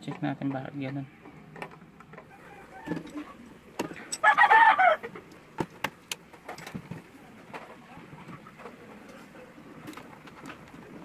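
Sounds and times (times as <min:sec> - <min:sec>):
chicken calling: 0:02.3 - 0:03.4, 0:04.2 - 0:05.2.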